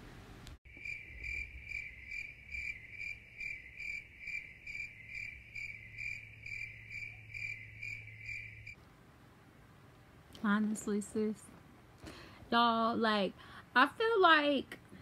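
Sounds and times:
cricket chirping: 0.7 - 8.8.

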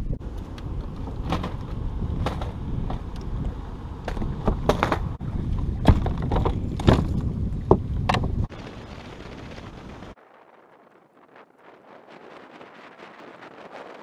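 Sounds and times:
wind buffeting microphone: 0.0 - 14.0
knocks and clunks on boat deck: 4.0 - 8.5.

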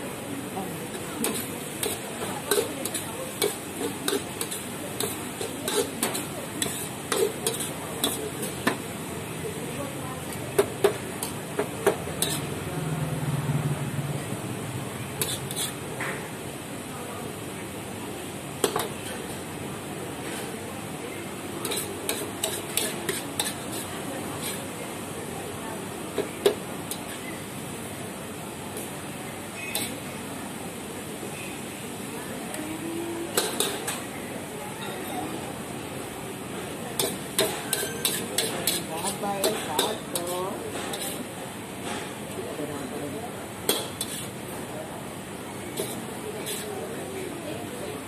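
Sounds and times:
frying sizzle: 0.0 - 25.2, 25.8 - 34.3, 35.3 - 41.9, 43.5 - 47.4
noodles sizzling: 0.9 - 9.3
metal spatula scraping wok: 1.2 - 8.8, 12.2 - 12.6, 15.2 - 15.8, 21.6 - 24.7, 29.6 - 30.0, 37.0 - 41.3, 43.7 - 44.4, 45.7 - 46.7
metal ladle clanking against wok: 10.6 - 12.5, 37.0 - 41.2.

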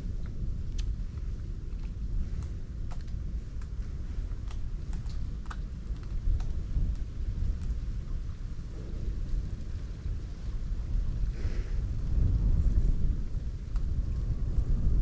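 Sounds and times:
wind rumbling on microphone: 0.0 - 15.0
light clicks: 0.2 - 8.2.

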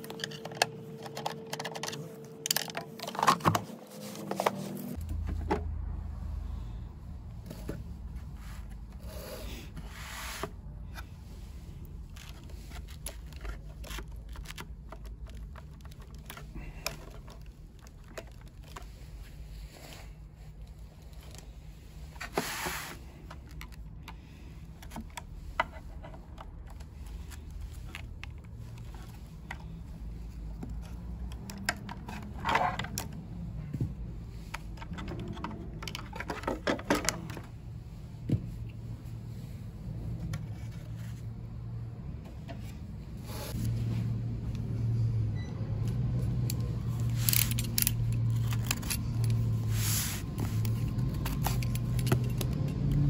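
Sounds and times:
clicks and knocks of plastic casing: 12.1 - 19.0, 23.3 - 37.5, 50.6 - 53.0.

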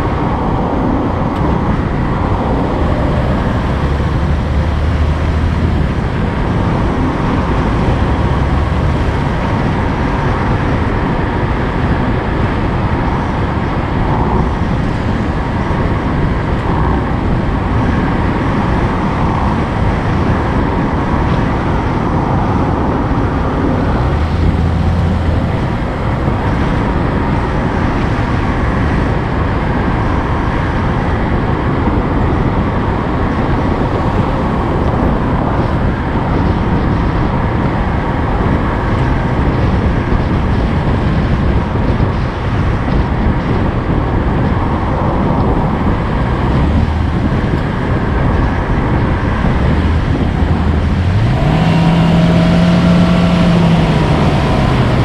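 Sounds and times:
vehicle engine and road noise: 0.0 - 55.0.

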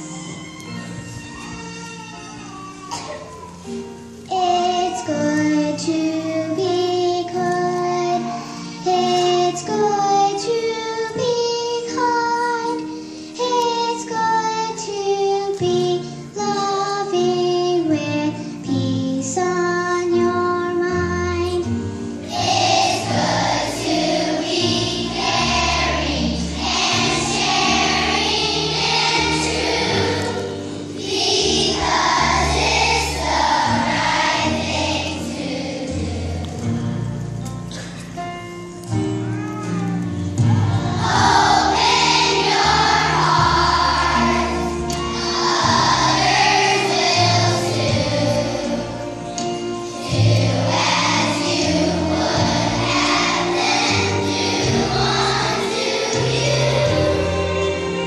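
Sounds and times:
backing music: 0.0 - 58.0
children's choir singing: 3.7 - 37.1, 40.4 - 58.0
girl singing into microphone: 4.3 - 21.7.

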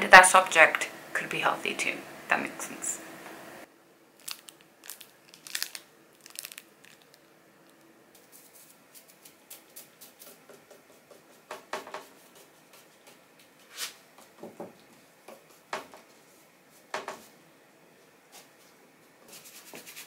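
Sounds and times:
small hard objects clicking: 4.2 - 7.8.

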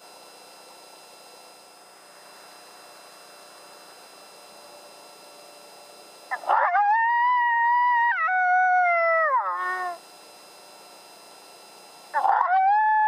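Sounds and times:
coyote howl call: 6.3 - 10.0, 12.2 - 13.0.

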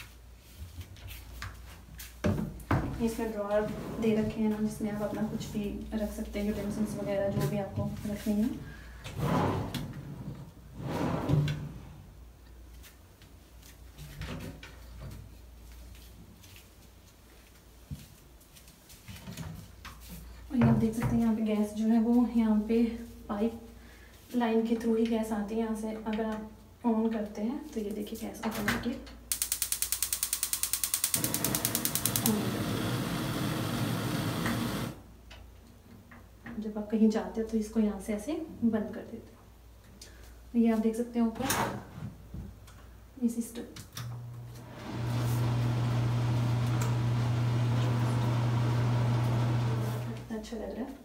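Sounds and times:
kitchen drawer sliding shut: 9.1 - 12.0
gas burner rushing: 9.2 - 9.8, 29.9 - 35.0, 44.6 - 50.2
gas igniter clicking: 29.3 - 32.9.

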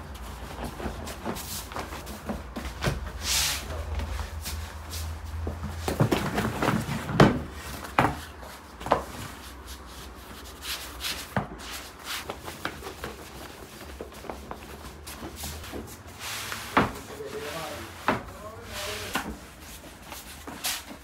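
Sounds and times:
hands rubbing dough: 8.3 - 17.7.

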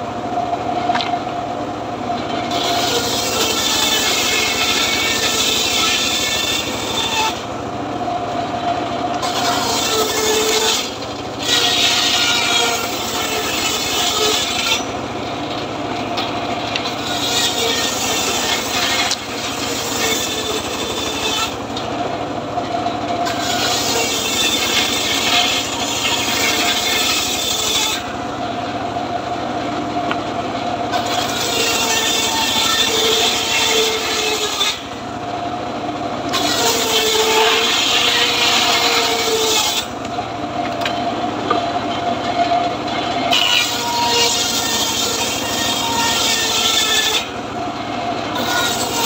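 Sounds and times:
saw drive low hum: 0.0 - 49.0
saw blade rasping through wood: 2.3 - 7.6, 9.1 - 22.1, 22.9 - 28.2, 30.9 - 35.1, 36.3 - 40.0, 42.0 - 49.0.

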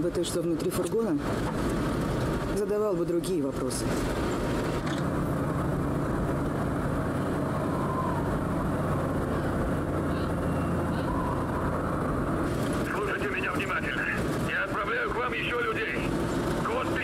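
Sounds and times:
truck engine droning: 0.0 - 17.0.

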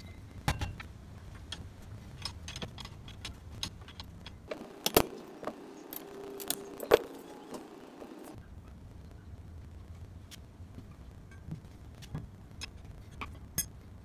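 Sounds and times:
low hum: 0.0 - 14.0.

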